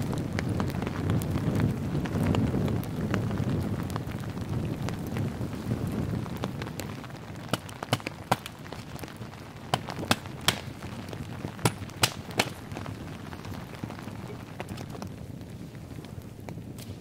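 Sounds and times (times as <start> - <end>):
hatchet chopping wood: 7.5 - 8.5, 9.7 - 10.7, 11.6 - 12.6.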